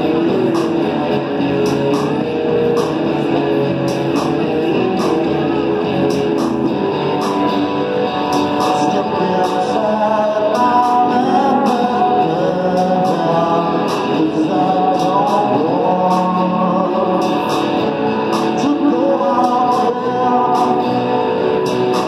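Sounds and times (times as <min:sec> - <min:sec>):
live rock band playing: 0:00.0 - 0:22.0
man singing: 0:08.5 - 0:22.0.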